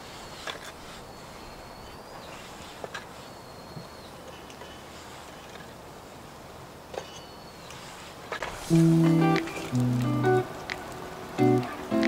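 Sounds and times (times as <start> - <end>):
faint outdoor background hiss: 0.0 - 12.0.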